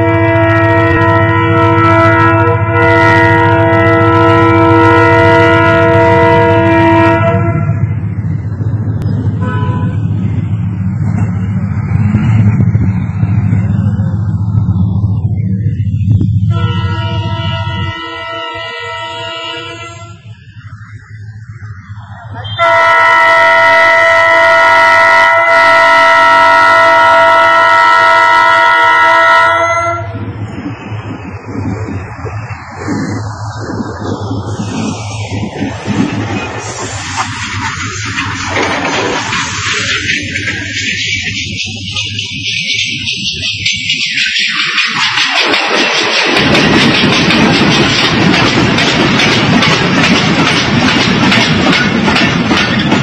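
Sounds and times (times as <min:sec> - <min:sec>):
train horn blaring chord: 0:00.0 - 0:07.9, 0:09.4 - 0:10.1, 0:16.5 - 0:20.3, 0:22.5 - 0:30.2
train rumbling: 0:00.0 - 0:53.0.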